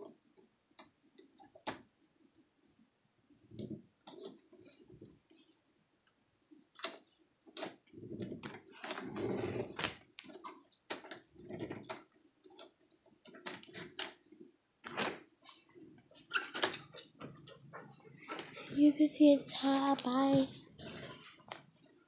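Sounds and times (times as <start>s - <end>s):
irregular clicks and light knocks: 0.0s - 2.5s, 3.5s - 18.8s.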